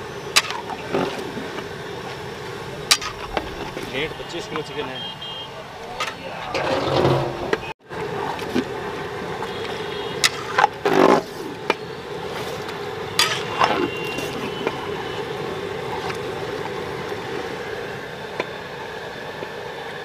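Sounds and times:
steady background hum: 0.0s - 9.4s
ladle scraping metal pot: 6.4s - 7.7s.

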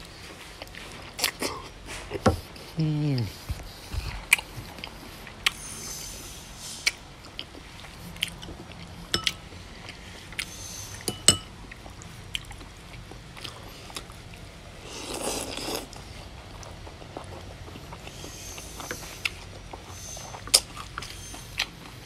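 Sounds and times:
chewing food: 0.0s - 5.6s, 6.9s - 22.0s
slurp of noodles: 14.8s - 16.0s.

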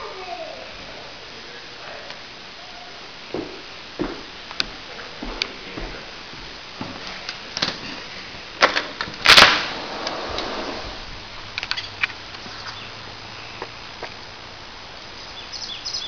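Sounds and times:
sliding door clicks and knocks: 8.6s - 12.1s.

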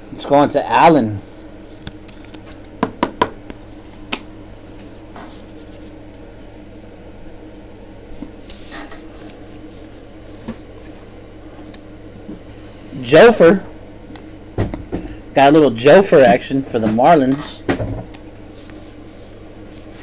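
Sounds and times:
low room hum: 0.0s - 20.0s.

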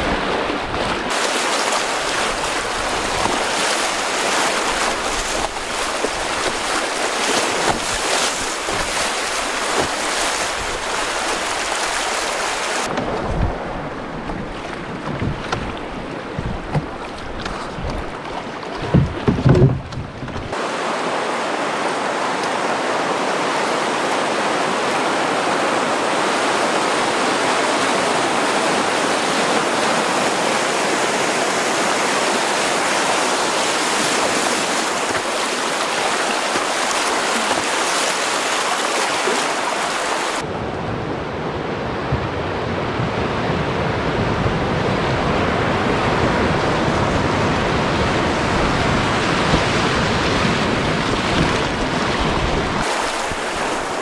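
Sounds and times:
rushing river current: 0.0s - 54.0s
low thumps: 12.9s - 20.6s
loud knocks: 18.8s - 20.6s.

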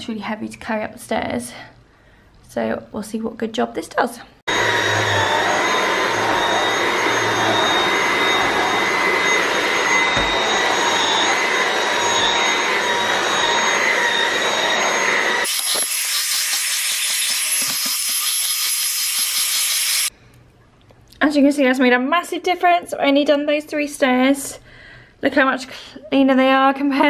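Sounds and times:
cordless vacuum motor whine: 4.5s - 16.2s.

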